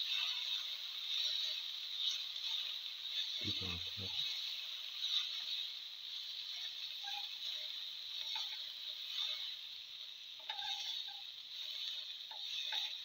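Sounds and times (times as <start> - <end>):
spatula scraping pan: 0.0 - 9.7, 10.3 - 13.0
food sizzling in frying pan: 0.0 - 13.0.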